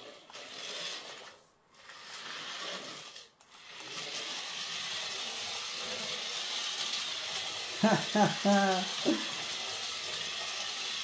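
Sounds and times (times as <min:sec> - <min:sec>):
toy truck motor whirring: 0:00.0 - 0:11.0.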